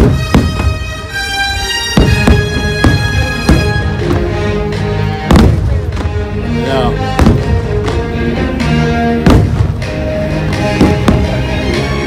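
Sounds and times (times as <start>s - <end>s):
loud show music: 0.0s - 12.0s
firework bang: 2.0s - 4.2s, 5.3s - 6.1s, 7.2s - 7.7s, 9.2s - 9.9s.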